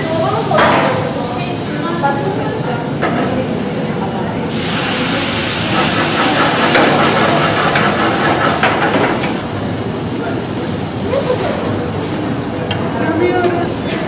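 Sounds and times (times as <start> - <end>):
flame flaring with loud hiss: 0.0 - 14.0
burger patties sizzling on grill: 4.5 - 14.0.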